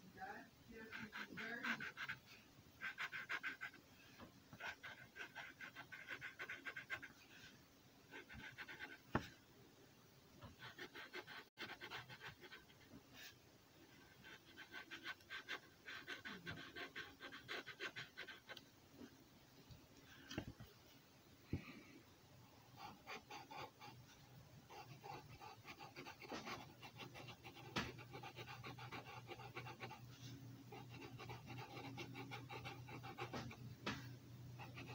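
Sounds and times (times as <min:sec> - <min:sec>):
marker scratching on paper: 0:00.7 - 0:02.2, 0:02.8 - 0:03.8, 0:04.6 - 0:07.1, 0:08.1 - 0:09.3, 0:10.6 - 0:12.7, 0:14.2 - 0:18.6, 0:22.8 - 0:24.0, 0:24.7 - 0:33.6, 0:34.6 - 0:34.9.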